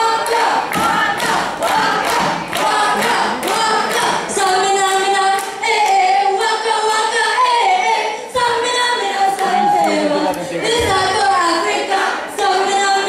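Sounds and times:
people clapping in time: 0.0s - 6.1s, 9.3s - 10.5s
group singing unaccompanied: 0.0s - 13.0s.

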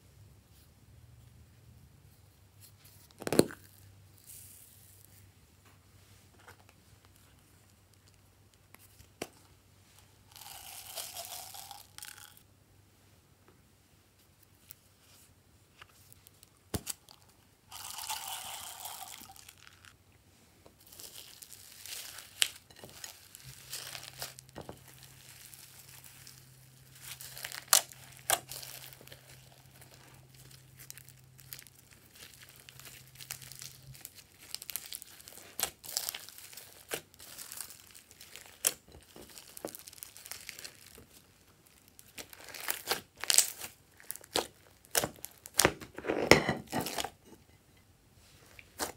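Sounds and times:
foam beads poured from bottle: 10.3s - 12.4s, 17.7s - 19.9s.

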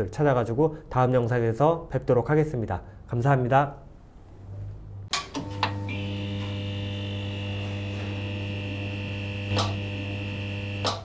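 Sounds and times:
neon sign electric buzz: 5.2s - 11.0s.

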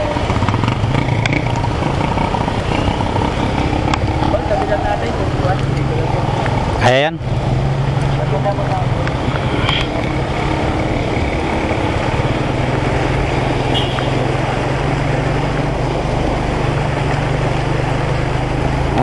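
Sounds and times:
scooter engine running: 0.0s - 19.0s
water splashing and spraying: 0.0s - 19.0s.

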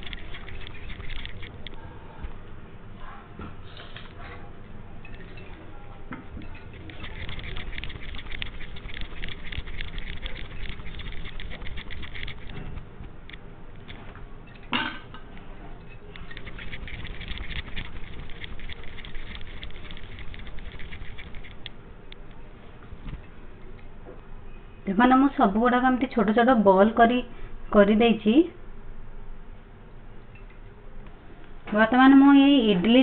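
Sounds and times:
bangles jingling and clinking: 6.4s - 12.6s, 15.8s - 21.7s.

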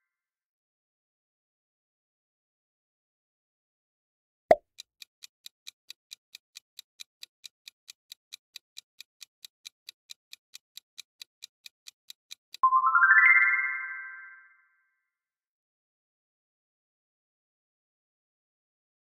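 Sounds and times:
clock-like ticking: 4.5s - 12.6s.

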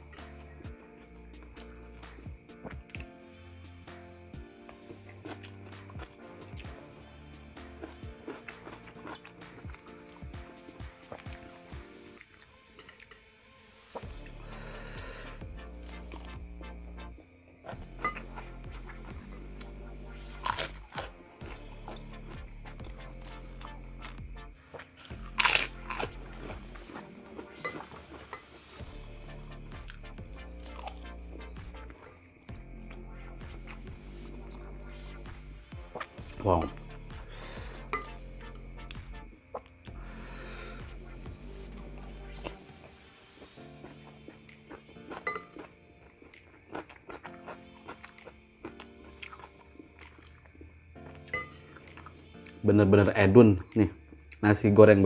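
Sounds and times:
background music: 0.0s - 55.0s
person chewing and crunching: 4.7s - 13.2s, 14.0s - 40.9s, 41.5s - 52.6s, 53.6s - 54.4s
crunching crisp cracker: 10.8s - 13.2s, 20.3s - 28.6s, 42.4s - 52.7s.

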